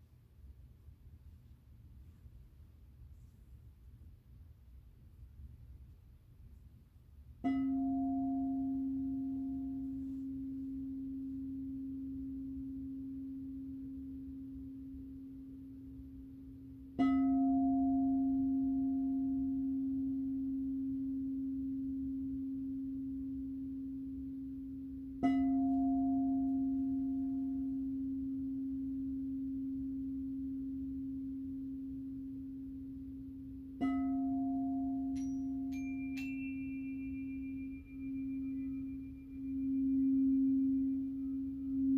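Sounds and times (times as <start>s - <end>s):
singing bowl struck with mallet: 7.4s - 16.0s, 16.8s - 41.9s
higher ringing tones: 34.0s - 41.9s.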